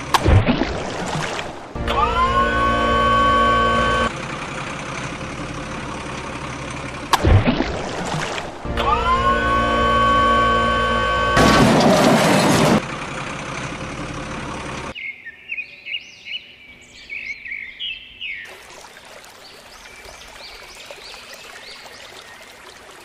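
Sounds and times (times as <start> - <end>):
birds chirping: 14.9 - 23.0.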